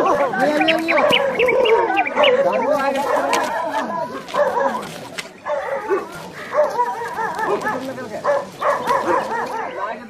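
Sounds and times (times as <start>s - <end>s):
dog yelping and whimpering: 0.0s - 4.8s
people's voices: 0.0s - 10.0s.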